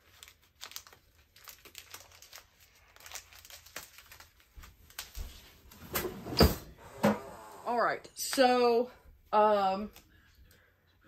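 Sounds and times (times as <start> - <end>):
plastic packaging crinkling: 0.0 - 5.7.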